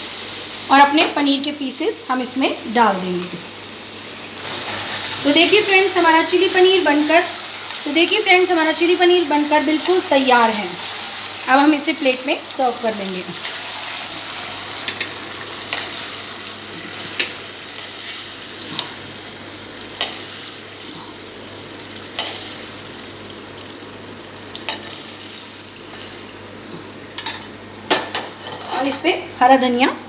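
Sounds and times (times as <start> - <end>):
food sizzling in a wok: 0.0 - 28.9
metal spoon scraping a pan: 28.3 - 29.0.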